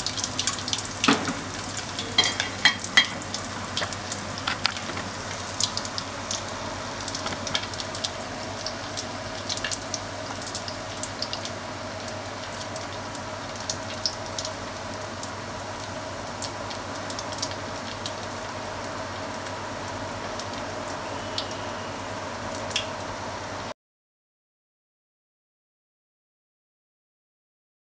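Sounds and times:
frying oil sizzling: 0.0 - 23.7
oil pops and crackles: 0.2 - 11.5.

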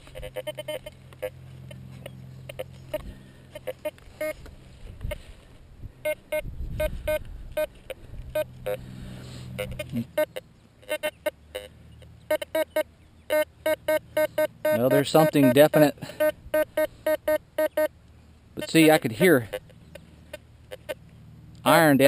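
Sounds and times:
metal detector beeping: 0.0 - 4.5, 6.0 - 8.8, 9.5 - 11.7, 12.3 - 17.9, 18.6 - 20.0
steady low hum: 0.0 - 22.0.

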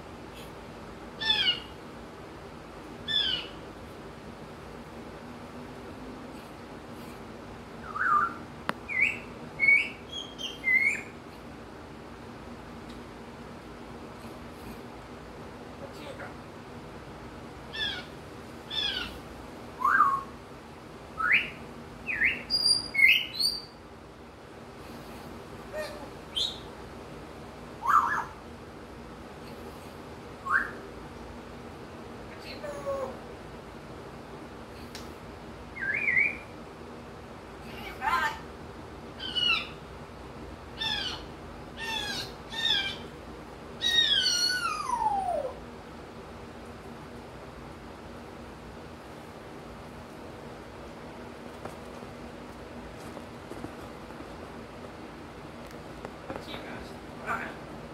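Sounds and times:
parrot whistling and chirping: 1.2 - 1.7, 3.1 - 3.6, 7.8 - 11.1, 19.8 - 20.4, 21.2 - 23.8, 26.3 - 26.7, 27.8 - 28.4, 30.4 - 30.8, 35.8 - 36.5, 39.2 - 39.8, 43.8 - 45.6.

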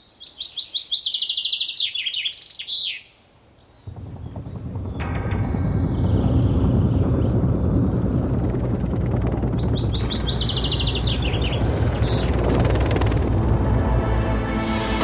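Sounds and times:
birds chirping: 3.6 - 14.5
helicopter flying low: 3.8 - 15.0.

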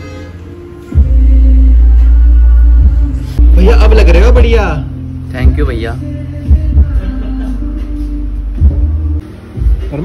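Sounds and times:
music with deep bass beat: 0.9 - 10.0.

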